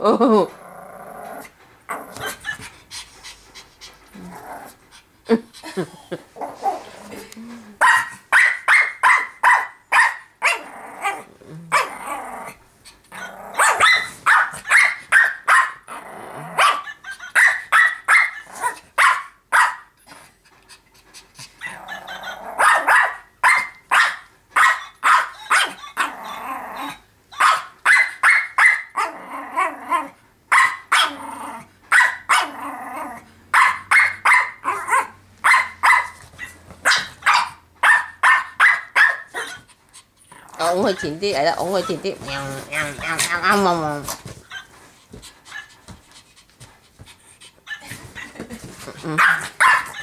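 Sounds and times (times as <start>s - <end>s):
dog growling: 0.3s - 2.6s, 4.0s - 7.8s, 10.4s - 13.7s, 15.8s - 16.6s, 21.6s - 22.6s, 25.9s - 27.0s, 29.0s - 30.2s, 31.0s - 31.7s, 32.4s - 33.4s, 40.2s - 41.1s
small dog yapping: 7.8s - 12.0s, 13.1s - 15.9s, 16.6s - 19.9s, 21.6s - 39.7s, 49.1s - 50.0s.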